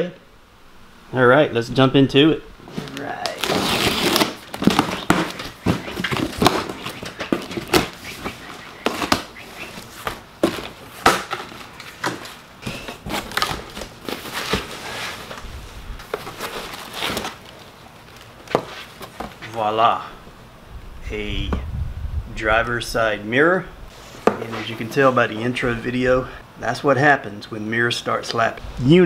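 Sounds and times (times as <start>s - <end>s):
cardboard flaps pulled open: 2.7s - 17.4s
wrapping rustling: 2.7s - 19.6s
blade slitting packing tape: 3.3s - 9.3s.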